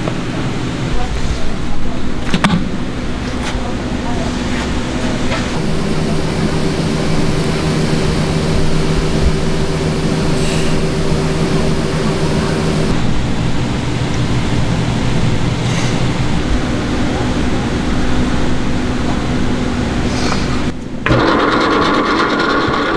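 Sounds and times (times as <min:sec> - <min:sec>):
machine hum: 0:00.0 - 0:22.9
constant rushing noise: 0:05.0 - 0:20.8.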